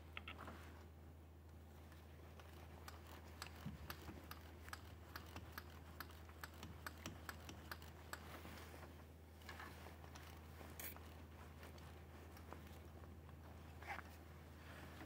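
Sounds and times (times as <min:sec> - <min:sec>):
socket ratchet clicking: 0:02.9 - 0:08.2
short rustle: 0:08.2 - 0:15.0.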